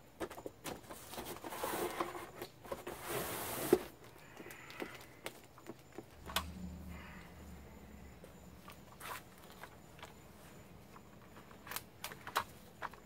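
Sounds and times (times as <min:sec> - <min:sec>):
low hum: 0:06.1 - 0:10.3.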